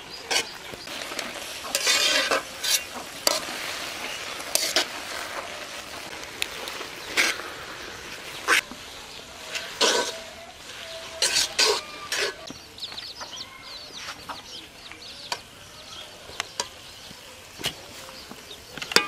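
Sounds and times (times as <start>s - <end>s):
leaves sizzling in a pan: 0.0s - 19.0s
metal spatula scraping a pan: 0.2s - 8.7s, 9.4s - 12.5s.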